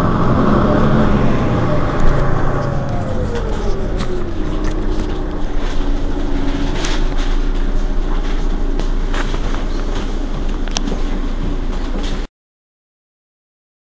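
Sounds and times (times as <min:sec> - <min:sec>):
whine falling in pitch: 0:00.0 - 0:10.9
bus diesel engine idling: 0:00.0 - 0:12.3.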